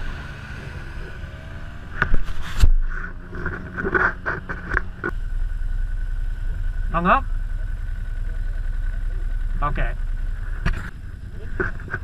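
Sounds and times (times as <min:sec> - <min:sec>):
vehicle engine at low revs: 0:00.0 - 0:12.0
sharp knocks and clatter: 0:02.0 - 0:05.2.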